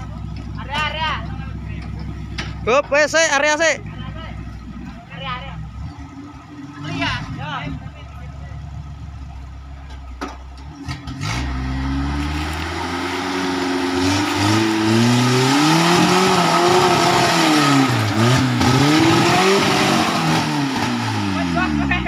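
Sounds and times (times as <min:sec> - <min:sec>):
engine revving under load: 0:10.6 - 0:22.0.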